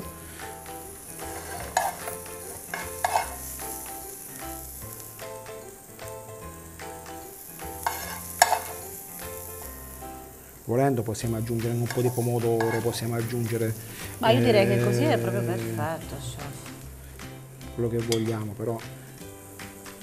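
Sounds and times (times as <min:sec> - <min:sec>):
vegetables sizzling: 0:00.0 - 0:20.0
spoon scraping and tapping pan: 0:01.2 - 0:03.5, 0:07.8 - 0:08.8, 0:11.7 - 0:13.4, 0:18.1 - 0:18.4.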